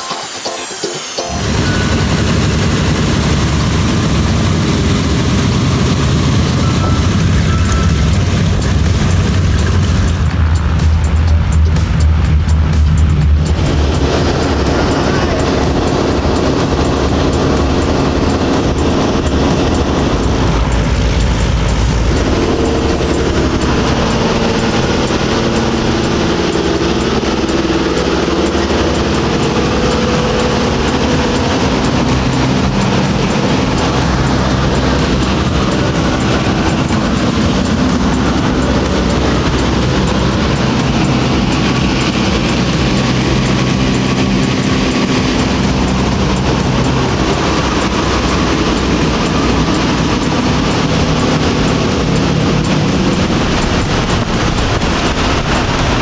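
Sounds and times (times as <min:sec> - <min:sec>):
propeller aircraft engines rumbling: 0:00.0 - 0:56.0.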